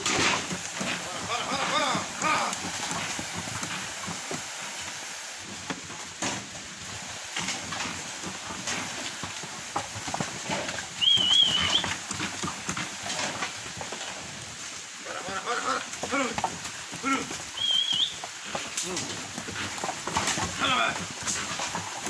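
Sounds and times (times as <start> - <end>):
cattle shuffling and knocking: 0.0 - 22.0
hoof clicks: 0.0 - 22.0
warbling high whistle: 17.6 - 18.1.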